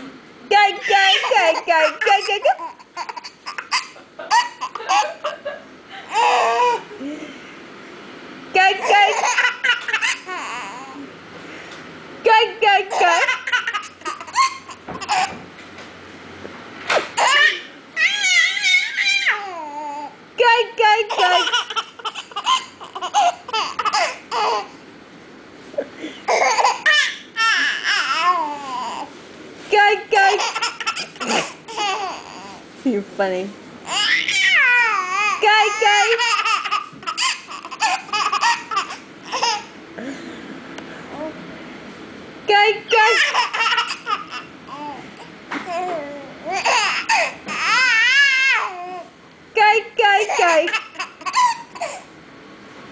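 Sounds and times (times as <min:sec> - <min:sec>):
baby laughing: 0:00.7 - 0:07.1, 0:08.6 - 0:11.1, 0:12.7 - 0:15.4, 0:17.2 - 0:20.1, 0:21.0 - 0:24.8, 0:26.3 - 0:29.0, 0:30.2 - 0:32.6, 0:33.9 - 0:39.8, 0:42.9 - 0:49.0, 0:50.1 - 0:52.1.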